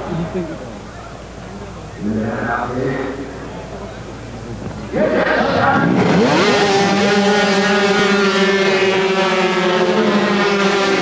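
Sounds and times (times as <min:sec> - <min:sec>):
racing motorcycles revving hard: 0:04.6 - 0:11.0.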